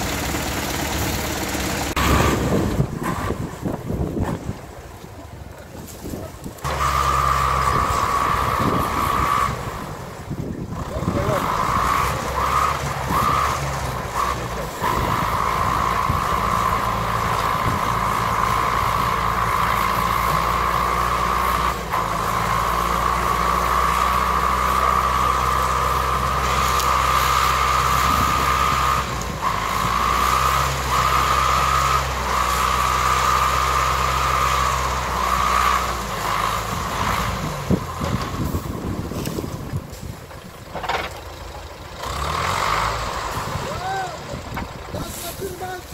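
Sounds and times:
diesel engine under load: 0.0 - 45.9
log dragging: 10.7 - 45.9.

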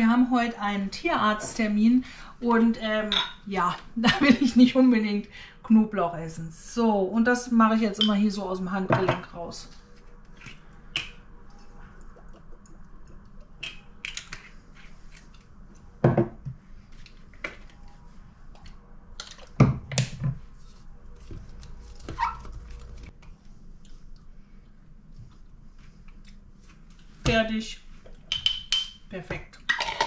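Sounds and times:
small bottles clicking and knocking: 29.6 - 30.0.

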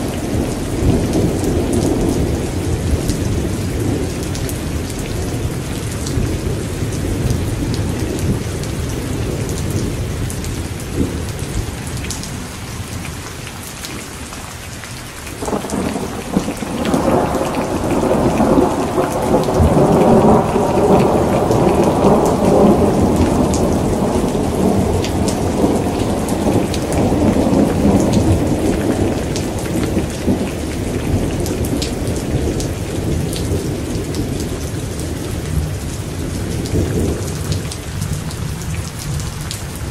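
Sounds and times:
steady rain: 0.0 - 39.9
rolling thunder: 15.4 - 39.9.

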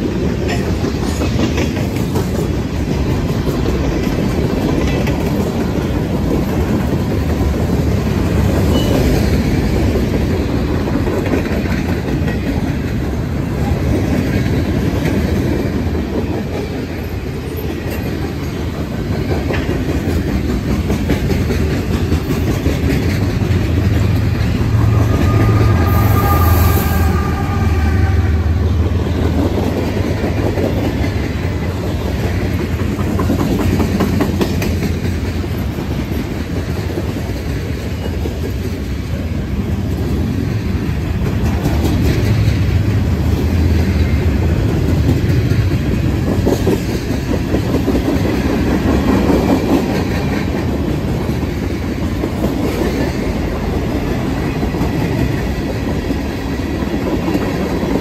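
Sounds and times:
train wheels clicking over rail joints: 0.0 - 26.0, 28.8 - 58.0.

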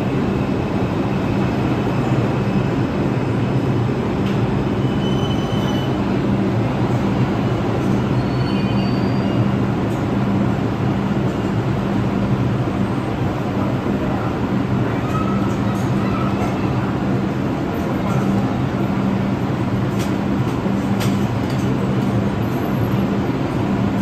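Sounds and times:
subway train rumbling: 0.0 - 24.0.

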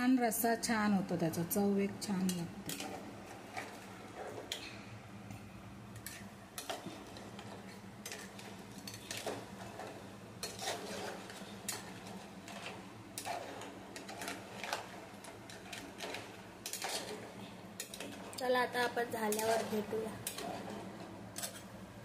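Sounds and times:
spoon clinking and scraping pot: 6.0 - 14.8, 15.5 - 17.2.

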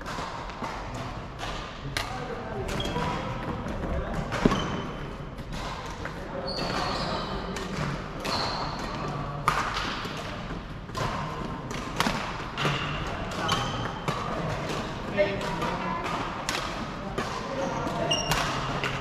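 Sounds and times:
voices in echoing hall: 0.0 - 19.0
shoes squeaking on wooden court: 2.6 - 9.1, 12.6 - 14.4, 17.5 - 19.0
racket striking shuttlecock: 7.6 - 19.0.

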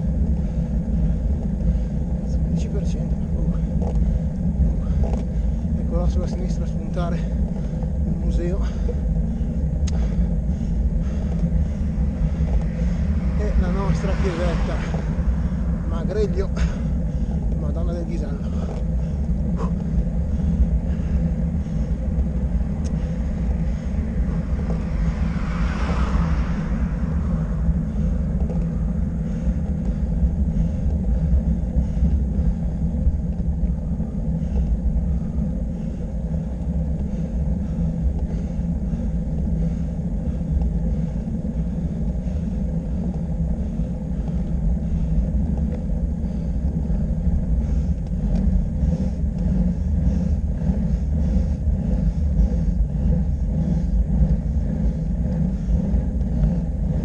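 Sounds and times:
road and wind rumble: 0.0 - 57.0
vehicle engine running: 0.0 - 57.0
brief rushing swell: 12.0 - 17.1, 23.7 - 29.2.

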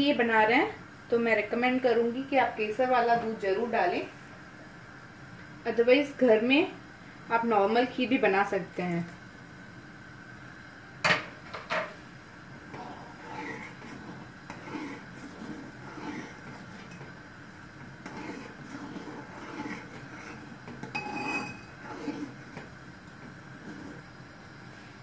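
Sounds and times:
ladle scraping metal pan: 12.7 - 17.2, 17.8 - 22.7.

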